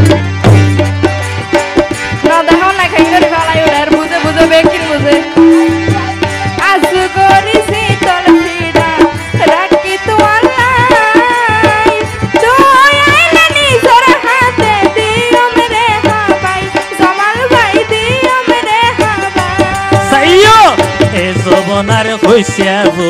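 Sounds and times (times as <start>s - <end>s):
melodic lead line with gliding notes: 0.0s - 9.0s
hand drums: 0.0s - 23.0s.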